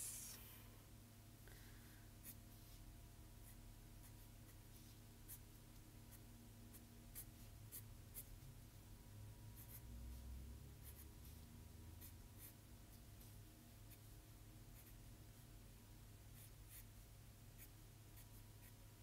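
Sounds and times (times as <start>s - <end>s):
marker drawing on paper: 2.2s - 5.5s, 6.1s - 8.4s, 9.6s - 10.2s, 10.8s - 15.1s, 16.3s - 17.0s, 17.6s - 18.8s.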